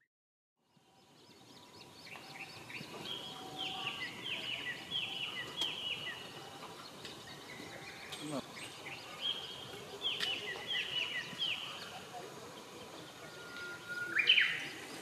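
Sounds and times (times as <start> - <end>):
birds chirping: 0.6 - 15.0
faint outdoor hiss: 0.6 - 15.0.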